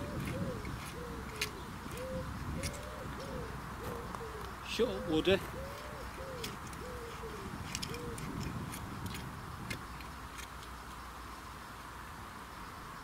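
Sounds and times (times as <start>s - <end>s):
garden hoe scraping dry soil: 0.0s - 2.9s, 5.4s - 10.6s
wood pigeon cooing: 0.0s - 8.7s.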